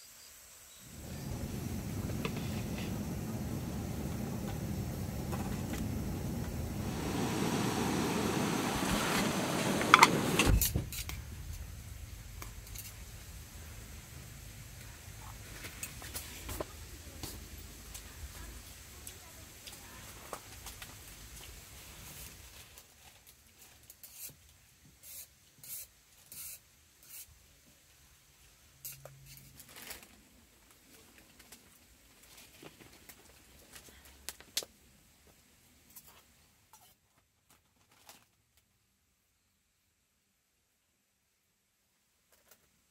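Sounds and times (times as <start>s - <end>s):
gas stove burner rushing: 0.9s - 11.1s.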